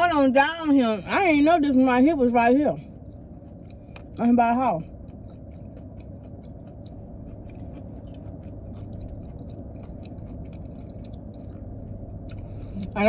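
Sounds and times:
low hum inside car: 0.0 - 13.0
mouth chewing food: 1.0 - 13.0.

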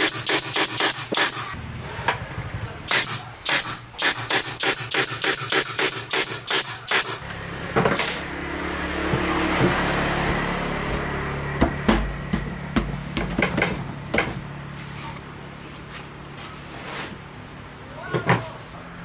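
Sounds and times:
pneumatic nailer shots: 0.0 - 1.6, 2.9 - 7.2.

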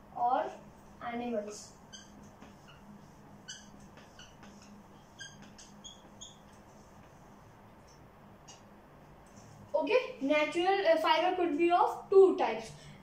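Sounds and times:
marker squeaking on whiteboard: 0.2 - 9.6.

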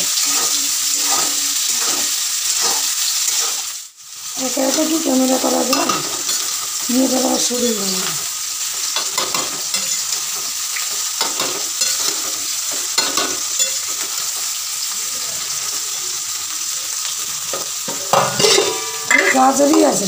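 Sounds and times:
spatula scraping a pan: 0.0 - 3.8, 8.8 - 14.5, 17.5 - 20.0
rice sizzling in a wok: 0.0 - 20.0.

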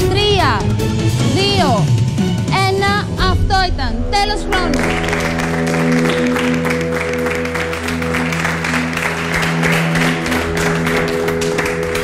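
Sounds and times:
music with long held chords: 0.0 - 12.0
people applauding: 4.6 - 12.0.

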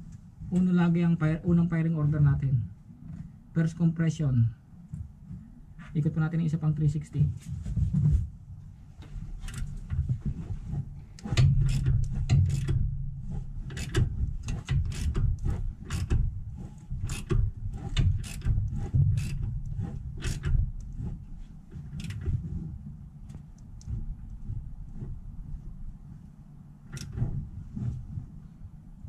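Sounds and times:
ratchet wrench clicking: 11.2 - 12.8, 13.7 - 16.2, 17.0 - 20.5.

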